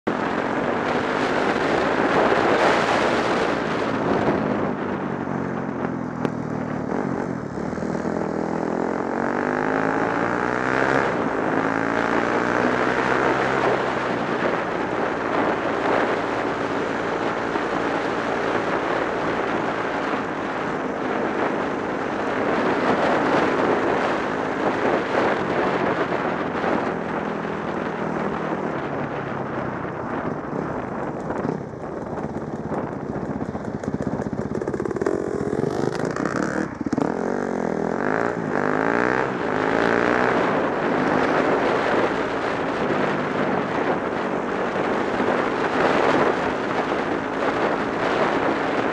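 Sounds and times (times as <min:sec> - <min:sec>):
steady rushing noise: 0:00.0 - 0:48.9
dirt bike engine revving: 0:34.3 - 0:42.0.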